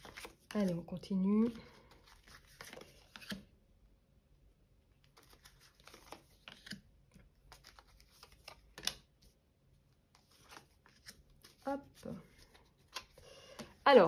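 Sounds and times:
cards sliding: 0.0s - 0.5s, 1.8s - 3.5s, 5.0s - 6.8s, 7.5s - 9.2s, 10.1s - 13.8s.

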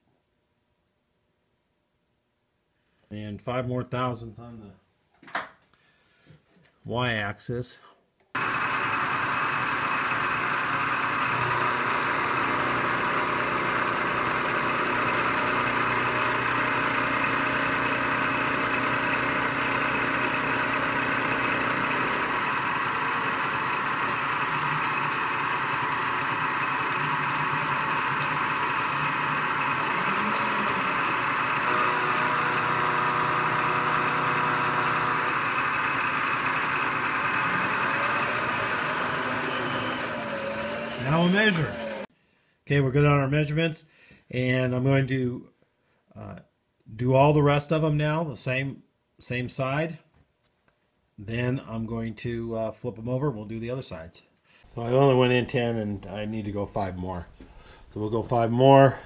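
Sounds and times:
milling machine cutting steel: 8.4s - 42.1s.

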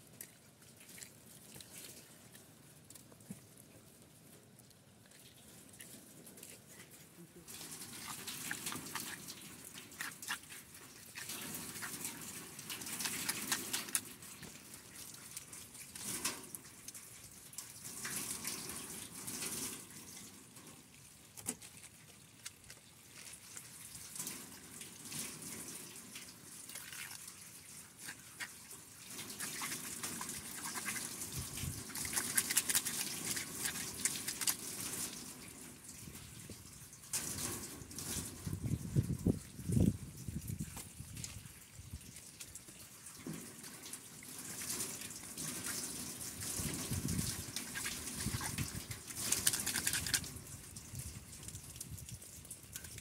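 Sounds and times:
water splashing: 0.0s - 3.9s, 5.0s - 53.0s
water pouring onto metal sheet: 5.3s - 53.0s.

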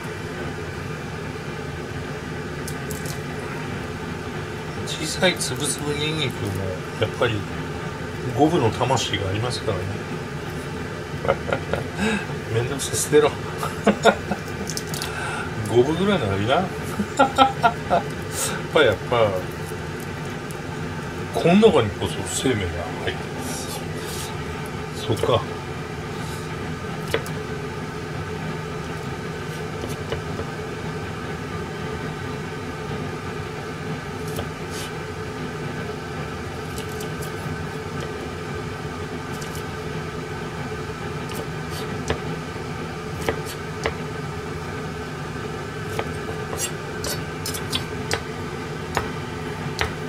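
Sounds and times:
mechanical hum: 0.0s - 50.0s
knife tapping on cutting board: 49.8s - 50.0s.

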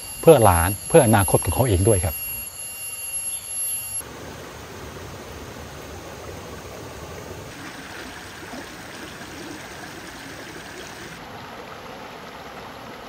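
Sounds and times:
stream trickling over rocks: 4.0s - 13.0s.

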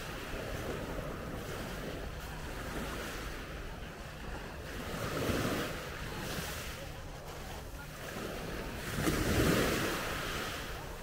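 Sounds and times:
wind rumble on microphone: 0.0s - 11.0s
small waves on pebble shore: 4.7s - 11.0s.

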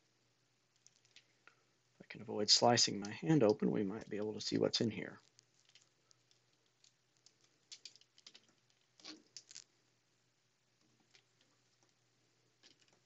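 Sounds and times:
faint low hum: 0.0s - 7.8s.

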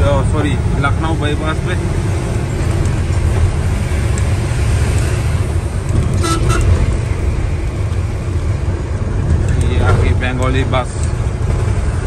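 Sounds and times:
engine and road rumble: 0.0s - 12.0s
vehicle horn toots: 6.2s - 6.9s.

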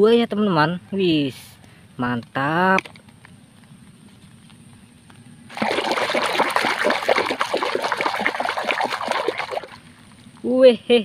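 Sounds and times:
splashing in soapy water: 5.5s - 9.9s.

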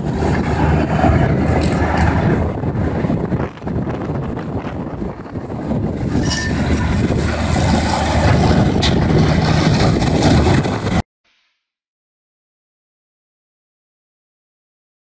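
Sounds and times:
tractor diesel engine under load: 0.0s - 11.0s
mulcher shredding stalks: 6.0s - 11.0s.

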